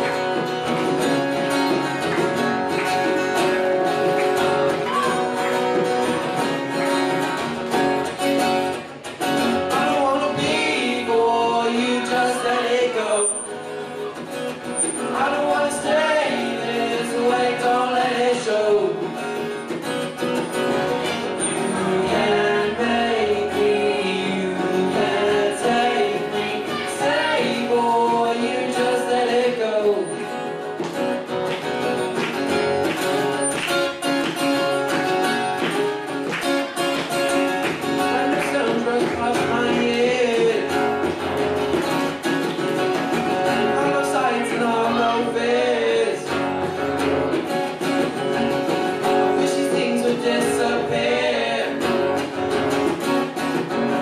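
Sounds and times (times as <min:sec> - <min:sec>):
acoustic guitars strumming: 0:00.0 - 0:54.0
boy singing: 0:09.8 - 0:13.4, 0:15.1 - 0:18.9, 0:21.8 - 0:30.0, 0:43.6 - 0:46.3, 0:49.4 - 0:51.8.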